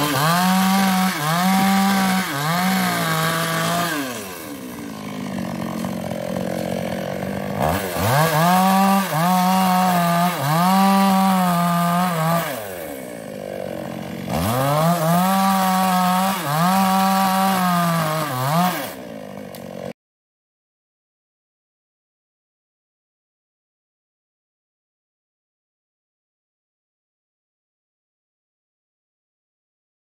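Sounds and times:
chainsaw engine idling: 0:00.0 - 0:19.9
chainsaw cutting logs: 0:00.0 - 0:20.0.

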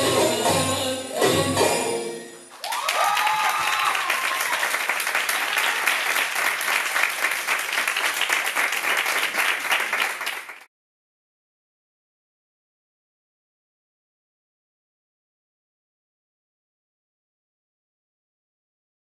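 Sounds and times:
dance music: 0:00.0 - 0:02.5
audience applause: 0:02.5 - 0:10.7
person cheering: 0:02.6 - 0:04.8.

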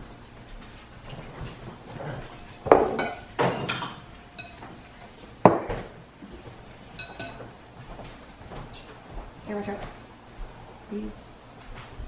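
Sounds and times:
tableware clinking: 0:01.1 - 0:04.8, 0:06.9 - 0:07.6, 0:08.6 - 0:09.0.

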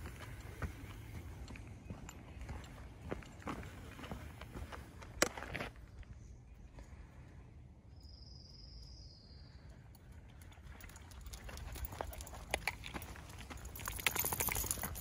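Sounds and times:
footsteps on dirt trail: 0:00.0 - 0:06.9, 0:11.4 - 0:15.0.

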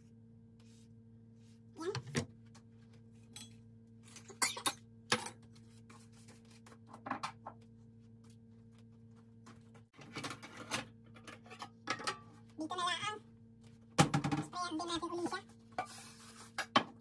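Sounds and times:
kitchen clicks and knocks: 0:10.0 - 0:12.3.

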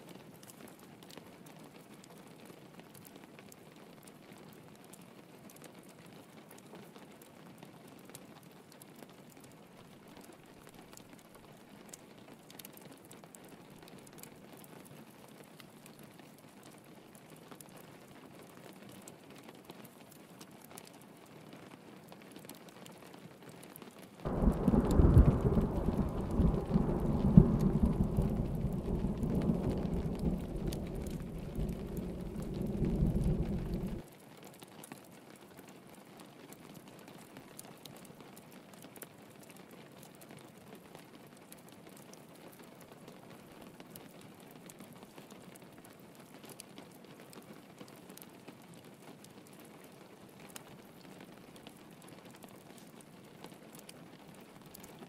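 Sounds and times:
rain pattering: 0:00.0 - 0:55.0
drops ticking: 0:24.3 - 0:34.0
thunder rumbling: 0:24.3 - 0:34.0.

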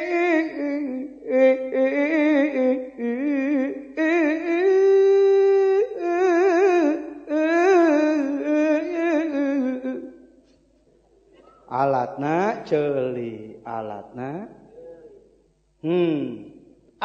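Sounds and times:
person singing unaccompanied: 0:00.0 - 0:10.2, 0:15.8 - 0:16.5.

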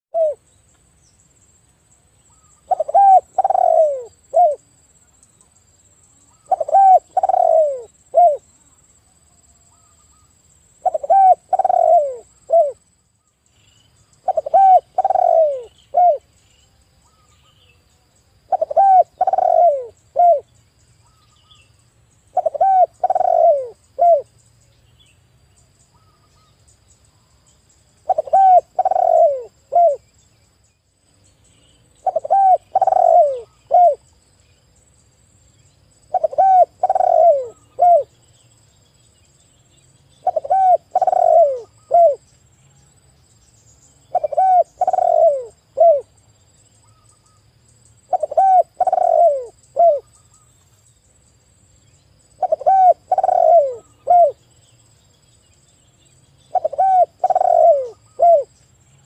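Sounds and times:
dove cooing: 0:00.1 - 0:00.4, 0:02.6 - 0:04.6, 0:06.3 - 0:08.5, 0:10.8 - 0:12.8, 0:14.2 - 0:16.3, 0:18.5 - 0:20.5, 0:22.3 - 0:24.3, 0:28.0 - 0:30.0, 0:32.0 - 0:34.0, 0:36.1 - 0:38.2, 0:40.2 - 0:42.2, 0:44.1 - 0:46.1, 0:48.1 - 0:50.1, 0:52.4 - 0:54.4, 0:56.5 - 0:58.6.

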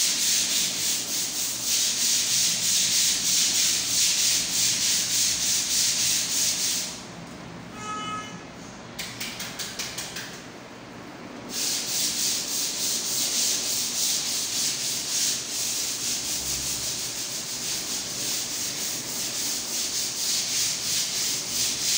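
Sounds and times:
sandpaper rubbing on a wall: 0:00.0 - 0:07.1, 0:11.5 - 0:21.9.

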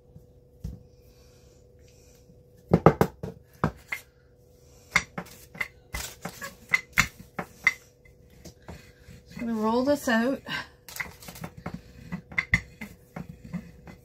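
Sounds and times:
rolling pin knocking on counter: 0:02.7 - 0:03.8, 0:11.0 - 0:14.0.

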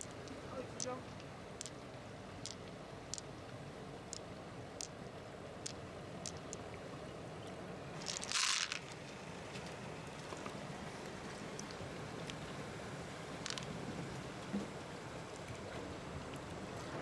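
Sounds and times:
pearls clattering into shell: 0:08.0 - 0:09.0.

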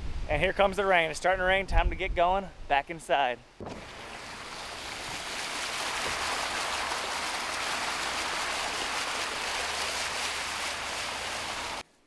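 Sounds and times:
tyres spraying water: 0:03.6 - 0:11.8.

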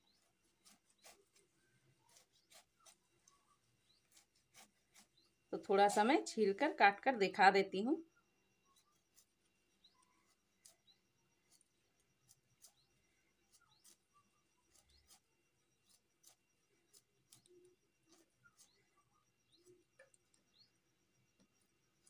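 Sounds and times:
knife paring fruit skin: 0:00.0 - 0:05.2, 0:09.9 - 0:18.8
faint bird chirps: 0:00.0 - 0:22.0.

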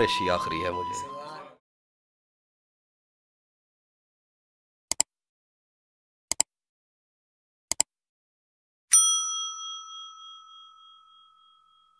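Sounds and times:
bright bell ding: 0:08.9 - 0:11.9.

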